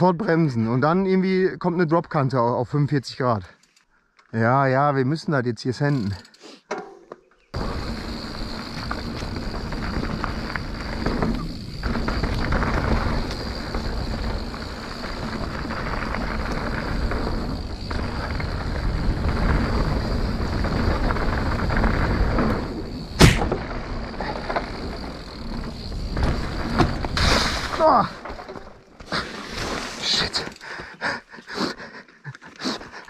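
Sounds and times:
bike tyres rumbling on dirt: 7.6s - 30.9s
sharp thump: 23.2s - 23.6s.

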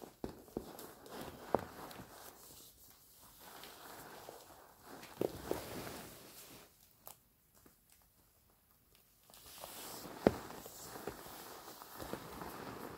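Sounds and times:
hands rubbing leather shoes: 9.6s - 12.9s.

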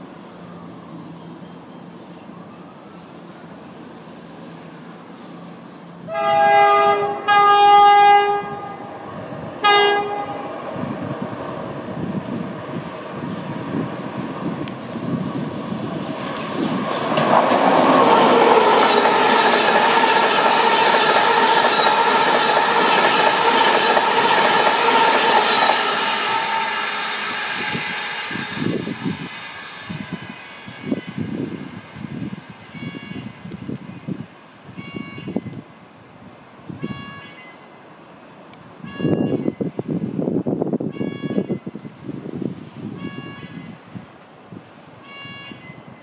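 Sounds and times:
train rumble and wheel clatter: 0.0s - 46.0s
two-tone train horn: 6.0s - 10.6s, 19.4s - 31.4s, 32.7s - 33.4s, 34.7s - 35.5s, 36.7s - 37.6s, 38.8s - 39.6s, 40.8s - 41.7s, 42.9s - 43.8s, 45.0s - 46.0s.

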